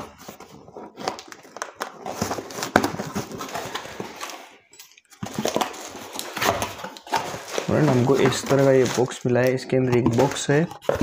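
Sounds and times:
cardboard box being opened: 0:00.0 - 0:04.3, 0:05.2 - 0:09.1.

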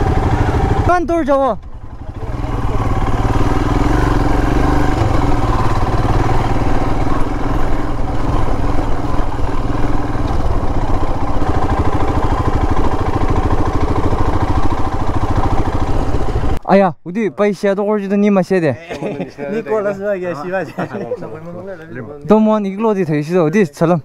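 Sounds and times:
motorcycle engine running: 0:00.0 - 0:16.6.

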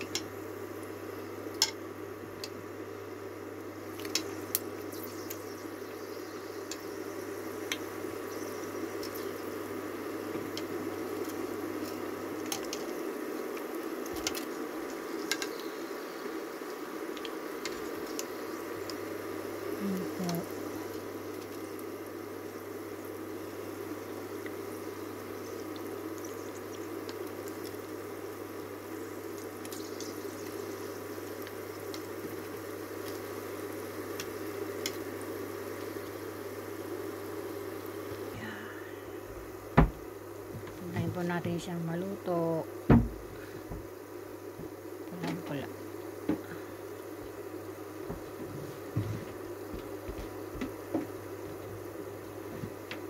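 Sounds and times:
crackles and pops in oil: 0:00.0 - 0:02.6, 0:03.9 - 0:06.0, 0:06.6 - 0:09.5, 0:10.3 - 0:15.9, 0:16.6 - 0:19.1, 0:20.0 - 0:23.1, 0:24.0 - 0:36.8
oil bubbling: 0:00.0 - 0:53.0.

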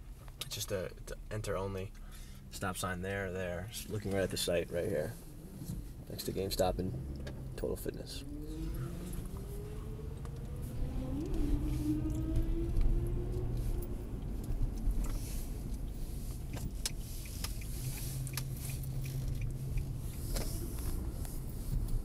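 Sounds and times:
low road rumble: 0:00.0 - 0:22.0
car engine rising note: 0:08.0 - 0:14.4.

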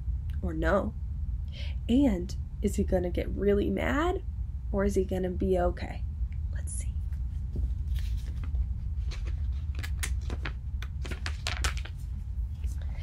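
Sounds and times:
steady low hum: 0:00.0 - 0:13.0
book pages rustling: 0:07.1 - 0:13.0.

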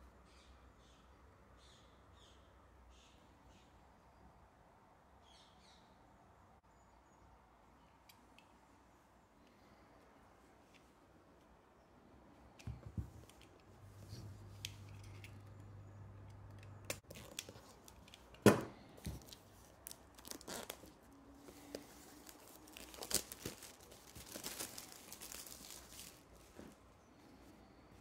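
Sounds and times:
plastic wrap tearing and crinkling: 0:19.2 - 0:21.1, 0:21.8 - 0:26.5.

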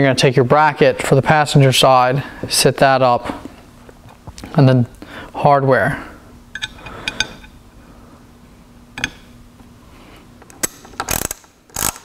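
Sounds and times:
metal bolts and washers clinking: 0:06.6 - 0:07.4
ratchet wrench clicking: 0:10.7 - 0:12.0.

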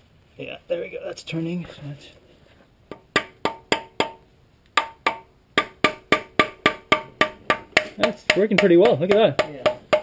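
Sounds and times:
hammer tapping metal tool: 0:02.9 - 0:04.2, 0:04.8 - 0:10.0.

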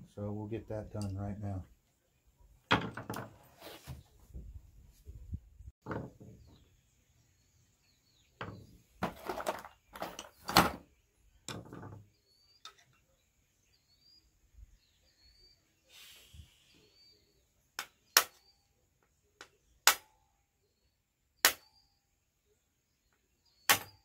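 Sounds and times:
metal parts knocking and scraping: 0:08.4 - 0:10.8.

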